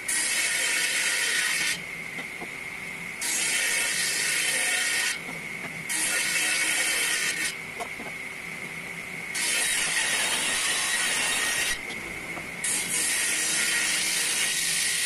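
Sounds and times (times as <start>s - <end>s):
table saw blade whine: 0.0s - 15.0s
saw blade hissing through wood: 3.2s - 5.2s.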